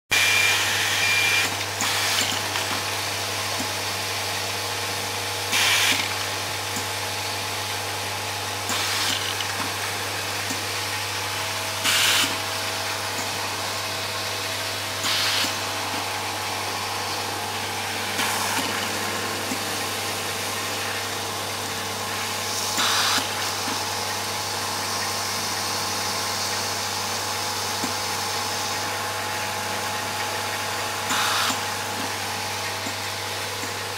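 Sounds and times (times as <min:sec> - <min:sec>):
pneumatic air hiss: 0:05.5 - 0:06.1, 0:08.7 - 0:09.3, 0:11.8 - 0:12.4, 0:15.0 - 0:15.7, 0:22.5 - 0:23.5, 0:31.1 - 0:31.6.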